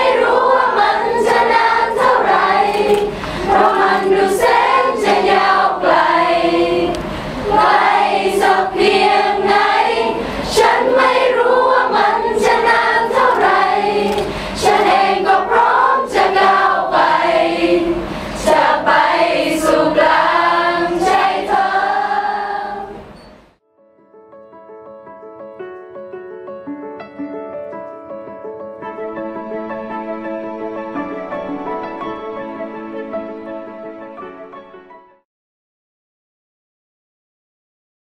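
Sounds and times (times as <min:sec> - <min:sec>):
choir singing: 0:00.0 - 0:23.3.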